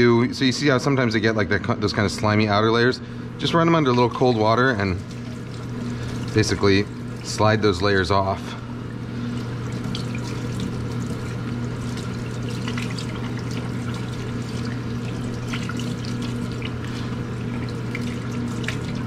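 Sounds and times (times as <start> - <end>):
steady low hum: 0.0 - 19.0
faucet water splashing in sink: 3.4 - 8.0, 8.8 - 19.0.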